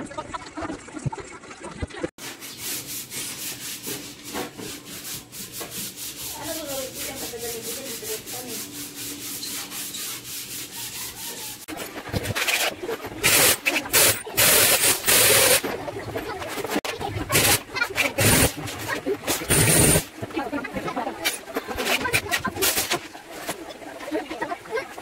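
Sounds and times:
rhythmic scraping strokes: 0:02.2 - 0:25.0
harsh scraping bursts: 0:16.4 - 0:20.1.

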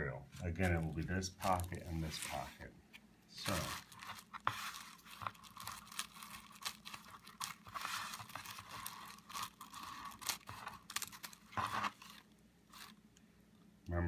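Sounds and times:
bubble wrap crinkling: 0:00.4 - 0:02.6, 0:03.4 - 0:13.2
scissors snipping bubble wrap: 0:03.5 - 0:12.9.

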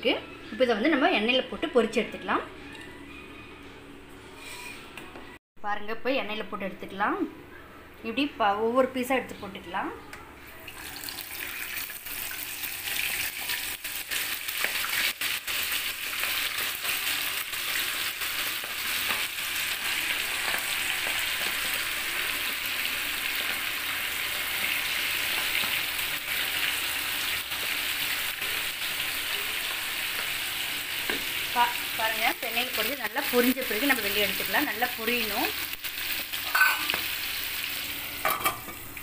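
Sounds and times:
meat sizzling in hot oil: 0:10.7 - 0:39.0.

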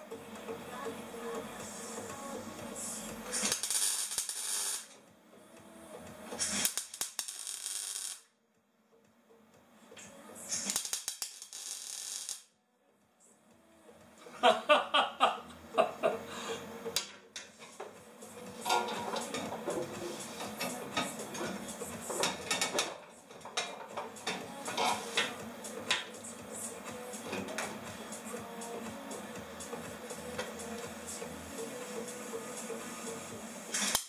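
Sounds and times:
music with a regular beat: 0:00.0 - 0:03.8, 0:05.1 - 0:06.5, 0:09.0 - 0:10.7, 0:13.5 - 0:34.0
welder crackling and hissing: 0:01.2 - 0:05.0, 0:06.1 - 0:08.3, 0:10.0 - 0:12.5, 0:16.2 - 0:34.0.

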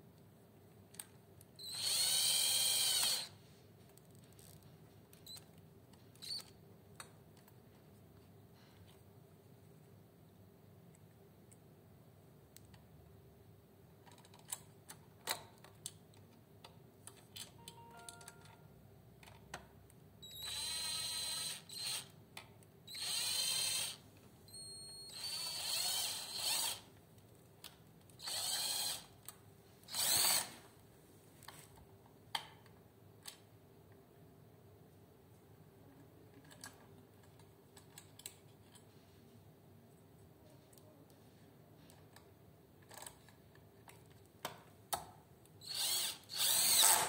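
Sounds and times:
drill driver whining: 0:01.6 - 0:03.3, 0:20.2 - 0:22.1, 0:22.9 - 0:24.0, 0:25.1 - 0:26.8, 0:28.2 - 0:29.1, 0:29.9 - 0:30.6, 0:45.6 - 0:47.0.

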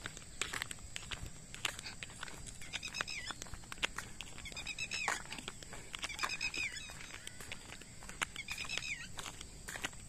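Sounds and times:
animal calling in high-pitched notes: 0:06.0 - 0:09.2.

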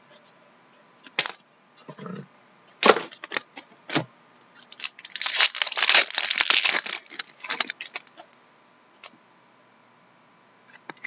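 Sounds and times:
cards clicking and rustling: 0:04.6 - 0:08.3
foil wrapper tearing and crinkling: 0:04.7 - 0:08.2.

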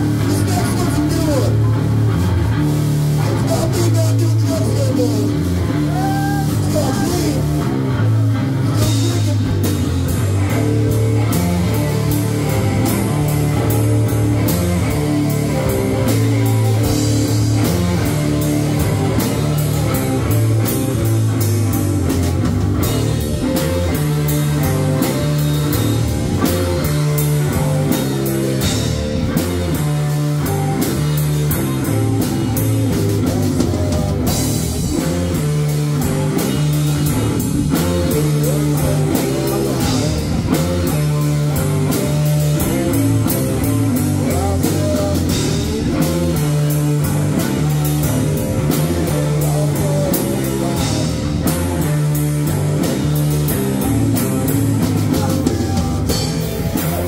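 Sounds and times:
drum kit beat: 0:00.0 - 0:57.0
electric guitar: 0:00.0 - 0:57.0.

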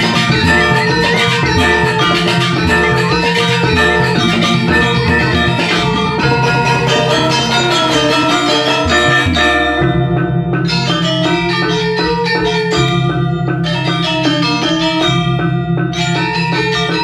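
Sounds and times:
sustained low drone: 0:00.0 - 0:11.5
bronze metallophones ringing: 0:00.0 - 0:17.0
hand drums: 0:00.0 - 0:17.0.

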